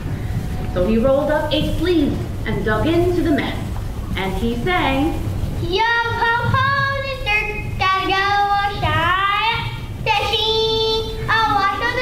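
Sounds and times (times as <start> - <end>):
children singing: 10.1 - 12.0.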